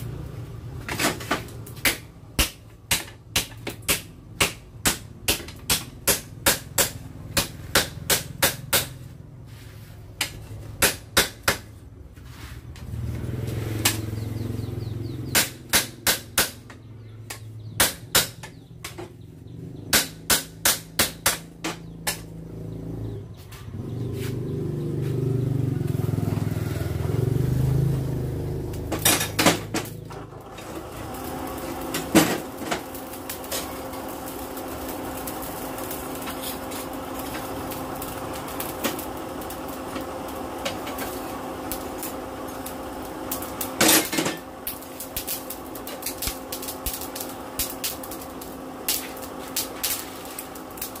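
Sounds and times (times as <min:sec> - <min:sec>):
forge air blower humming: 0:12.8 - 0:51.0
forge tools clanking on metal: 0:28.8 - 0:30.9, 0:31.6 - 0:33.9, 0:43.4 - 0:47.0.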